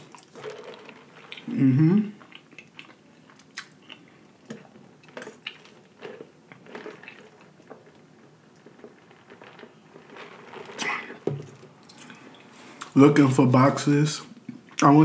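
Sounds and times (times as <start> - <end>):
mouth sounds of eating: 0.0 - 7.4
sipping through a straw: 8.8 - 12.2.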